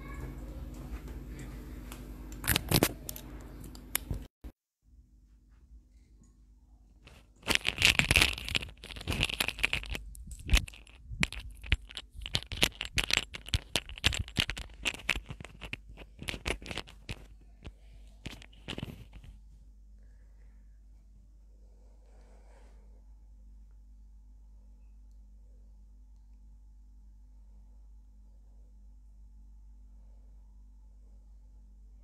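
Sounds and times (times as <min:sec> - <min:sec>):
faint low hum: 0:00.0 - 0:32.0
cloth rustling and scratching: 0:07.0 - 0:19.5.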